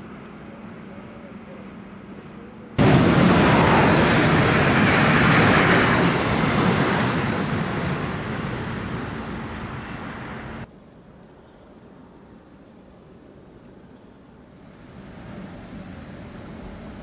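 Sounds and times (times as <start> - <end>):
electric train rushing past: 2.8 - 10.7.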